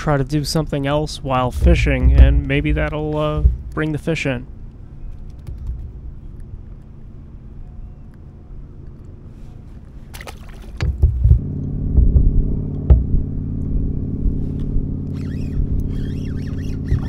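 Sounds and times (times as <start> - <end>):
knocks and clunks: 1.2 - 4.3, 10.7 - 13.4
loud motor drone: 1.4 - 4.2, 11.4 - 17.0.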